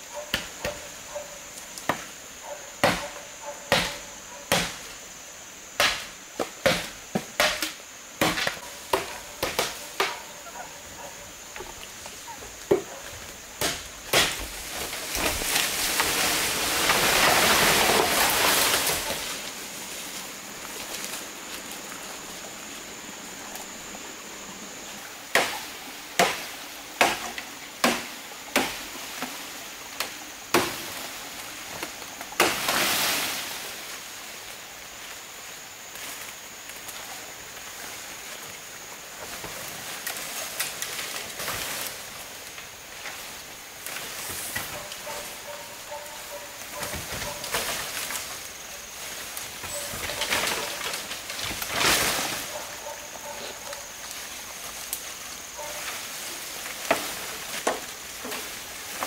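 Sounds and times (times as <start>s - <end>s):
bamboo leaves rustling: 0.0s - 59.0s
machete chopping bamboo: 2.8s - 4.9s, 5.8s - 10.2s, 13.6s - 14.6s, 25.3s - 28.8s, 30.0s - 30.9s, 32.4s - 32.8s.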